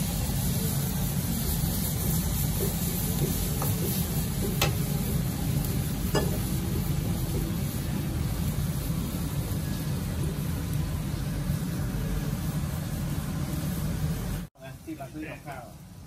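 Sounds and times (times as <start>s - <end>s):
curry bubbling: 0.0s - 14.2s
gas burner roaring: 0.0s - 16.0s
metal ladle scraping a wok: 1.9s - 5.2s, 5.8s - 6.7s
ladle tapping against wok: 2.6s - 4.9s, 6.1s - 6.5s.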